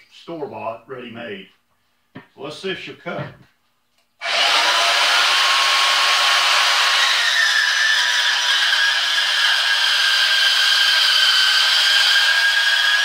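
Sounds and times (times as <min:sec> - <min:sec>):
bandsaw cutting sheet metal: 0:04.2 - 0:13.0.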